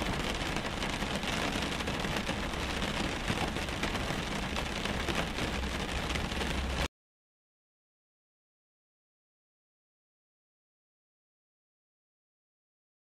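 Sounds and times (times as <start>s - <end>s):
rain drumming on a car roof: 0.0s - 6.9s.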